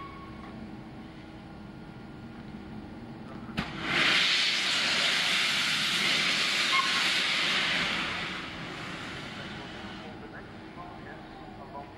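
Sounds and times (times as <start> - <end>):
locomotive steam hissing: 3.6 - 11.8.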